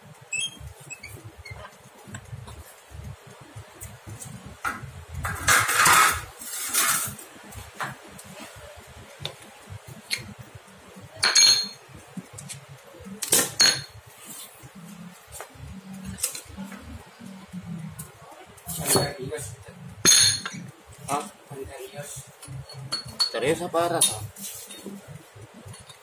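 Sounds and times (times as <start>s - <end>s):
metal plate scraping: 5.2s - 7.2s
ringing metallic clinks: 11.2s - 11.8s.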